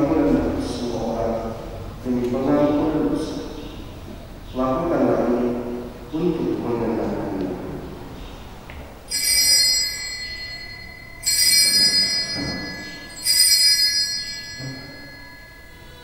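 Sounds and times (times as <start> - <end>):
small altar bells ringing: 9.0 - 16.0.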